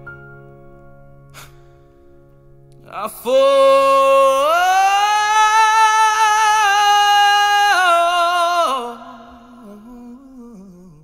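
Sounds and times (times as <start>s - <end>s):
man singing a long note: 2.8s - 11.0s.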